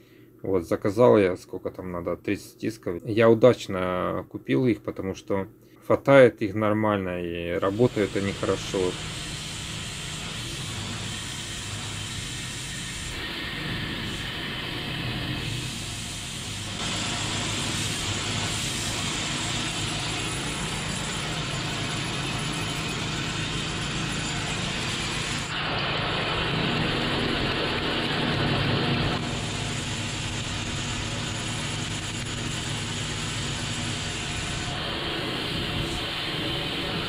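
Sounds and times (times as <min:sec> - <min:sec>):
petrol engine running: 0:13.0 - 0:37.0.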